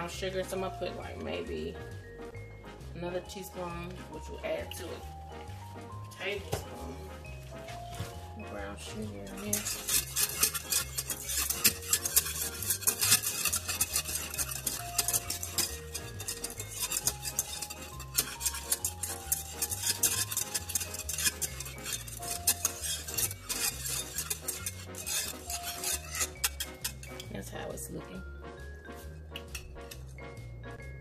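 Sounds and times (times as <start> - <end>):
whisk clicking and scraping in pan: 7.9 - 27.5, 29.3 - 30.2.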